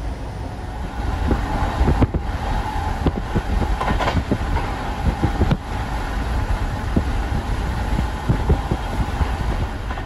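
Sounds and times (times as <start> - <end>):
train rumbling on track: 0.0 - 10.0
wheels knocking over rails: 3.0 - 5.6.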